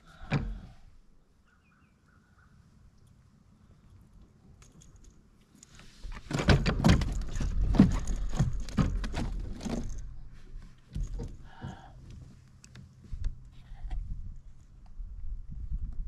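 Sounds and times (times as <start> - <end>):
knocks and thumps in plastic kayak: 6.2 - 10.0, 10.9 - 11.9.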